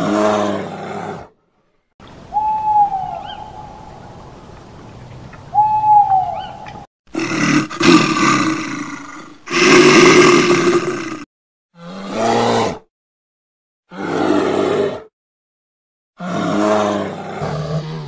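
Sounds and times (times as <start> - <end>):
bear roaring: 0.0 - 1.4, 7.1 - 12.9, 13.9 - 15.1, 16.2 - 18.0
owl hoots: 2.3 - 4.1, 5.5 - 6.8.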